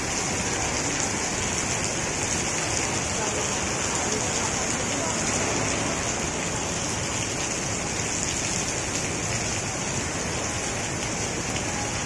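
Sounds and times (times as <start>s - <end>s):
heavy rain: 0.0s - 12.0s.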